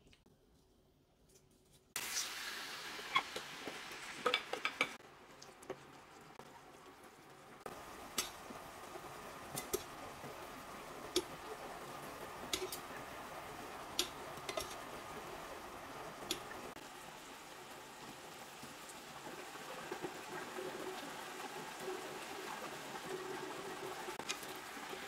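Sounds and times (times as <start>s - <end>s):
meat sizzling in a skillet: 2.0s - 5.0s, 7.7s - 25.0s
tongs clicking against pan: 12.5s - 12.8s, 14.0s - 14.8s, 16.2s - 16.5s.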